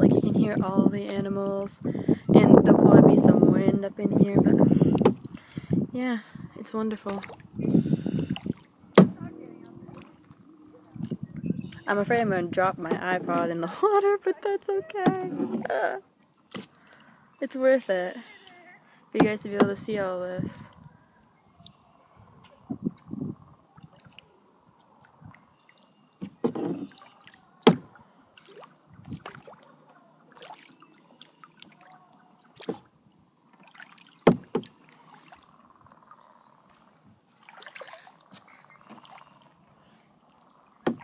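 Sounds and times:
paddle splashing in water: 6.9s - 13.7s, 15.0s - 17.1s, 23.7s - 41.0s
sharp knocks: 9.0s - 9.2s.

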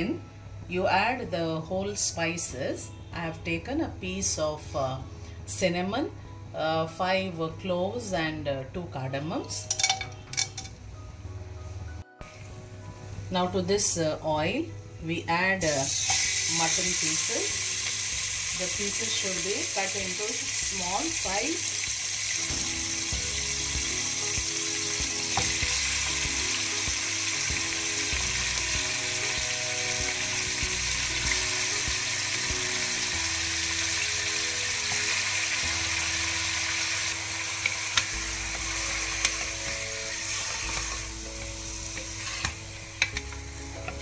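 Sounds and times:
meat sizzling in hot oil: 15.6s - 44.0s.

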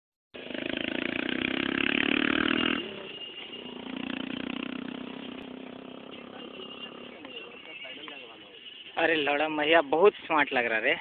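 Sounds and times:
small engine running: 0.4s - 7.7s.

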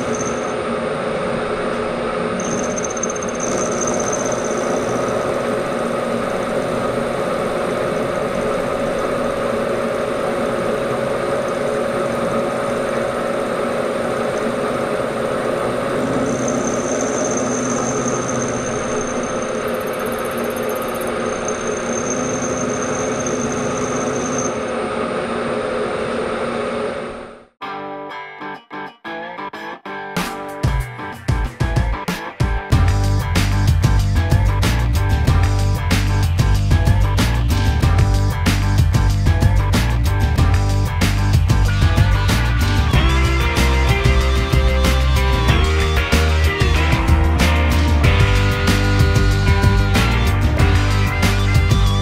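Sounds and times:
milling machine cutting metal: 0.0s - 27.3s.

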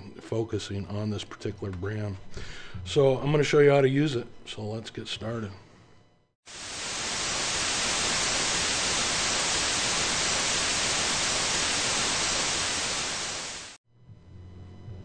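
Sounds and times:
television static hiss: 6.5s - 13.8s.

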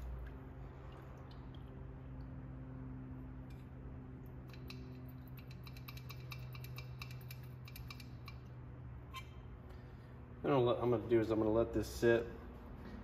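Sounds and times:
steady low hum: 0.0s - 13.0s
small metallic clicks and snaps: 4.4s - 8.5s.

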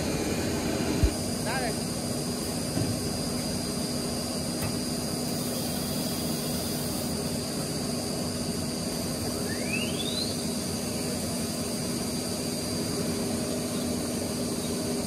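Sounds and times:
whine rising in pitch: 0.0s - 1.2s
cnc router whining: 0.0s - 2.0s.

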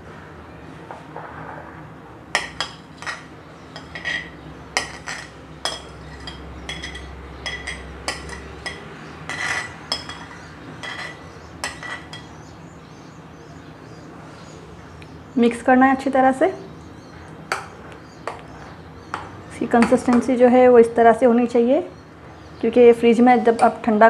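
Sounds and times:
spoon scraping and tapping a plate: 2.4s - 12.4s.

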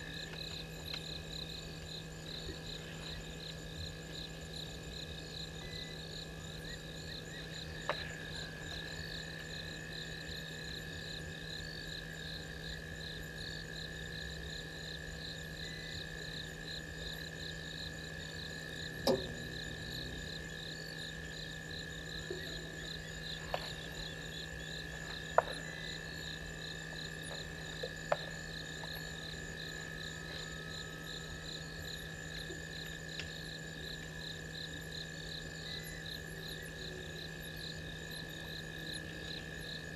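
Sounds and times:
fast pulsing insect call: 0.0s - 39.9s
insects trilling: 0.0s - 39.9s
low hum: 18.6s - 22.7s.

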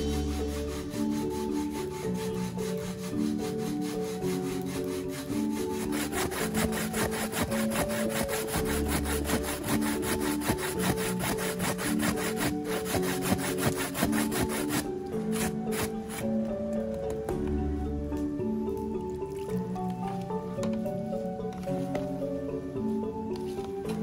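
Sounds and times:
soft background music: 0.0s - 24.0s
coconut rasping on metal grater: 0.2s - 16.2s.

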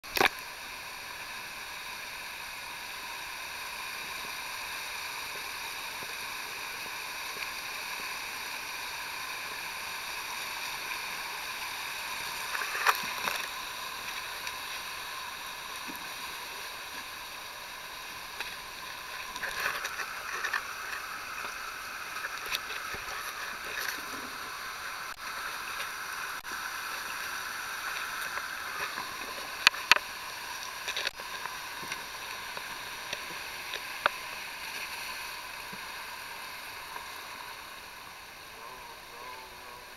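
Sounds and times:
water splashing: 9.3s - 37.8s.

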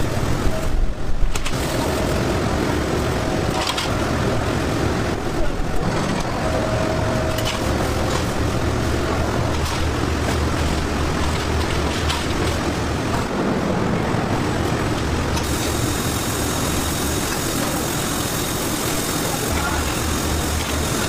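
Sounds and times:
machinery hum and rumble: 0.0s - 21.0s
water spray hissing: 15.4s - 21.0s.

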